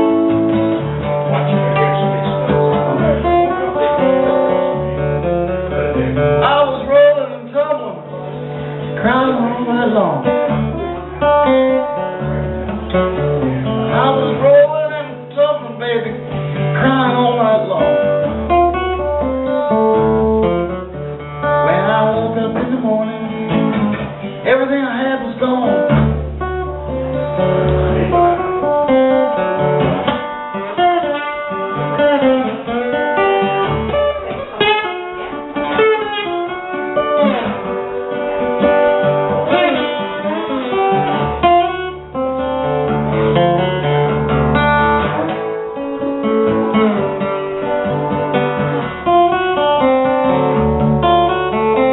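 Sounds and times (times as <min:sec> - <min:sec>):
acoustic guitar picked and strummed: 0:00.0 - 0:51.9
man singing into a microphone: 0:06.4 - 0:08.4, 0:09.0 - 0:10.4, 0:13.9 - 0:18.2, 0:21.6 - 0:23.8, 0:24.4 - 0:26.1.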